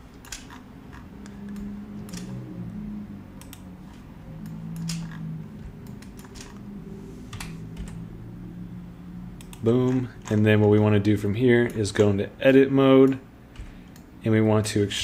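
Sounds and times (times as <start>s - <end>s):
computer keyboard keystrokes: 0.2s - 2.3s, 4.4s - 5.2s, 5.8s - 6.6s.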